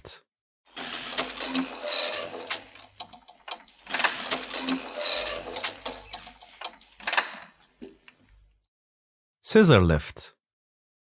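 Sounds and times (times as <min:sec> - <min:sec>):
scissor lift motor whirring and clicking: 0:00.7 - 0:08.2.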